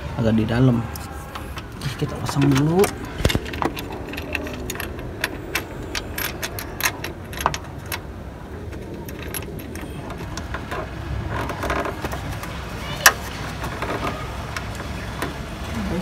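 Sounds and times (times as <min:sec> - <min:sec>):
metal hardware clinking: 0:00.9 - 0:12.4.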